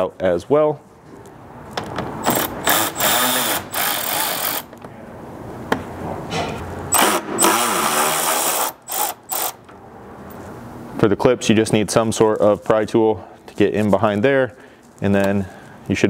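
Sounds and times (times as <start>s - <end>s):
power ratchet whirring: 2.2s - 4.8s, 6.9s - 9.6s.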